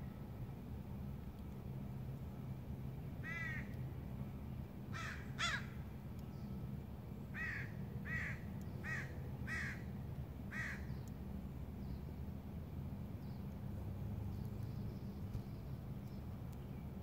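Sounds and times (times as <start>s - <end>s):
steady low rumble: 0.0s - 17.0s
bird calling: 7.4s - 9.9s.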